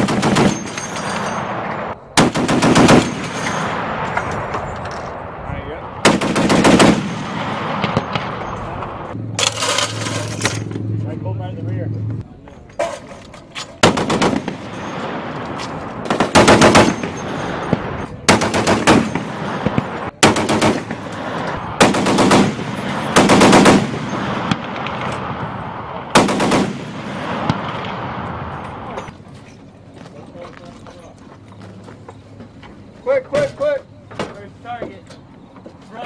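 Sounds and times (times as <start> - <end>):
heavy machine gun bursts: 2.2 - 3.9, 6.0 - 8.3, 16.1 - 21.1, 21.8 - 25.1, 26.2 - 27.0.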